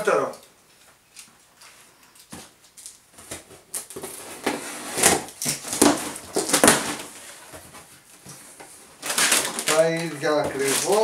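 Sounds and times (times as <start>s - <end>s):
cardboard flaps scraping: 3.2s - 11.0s.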